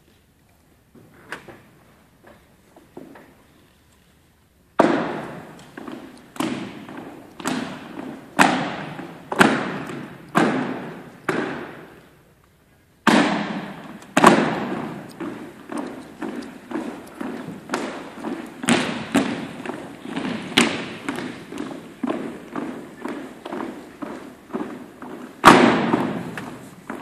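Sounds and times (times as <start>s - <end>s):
foot stomps on wooden floor: 4.8s - 12.0s, 13.0s - 27.0s.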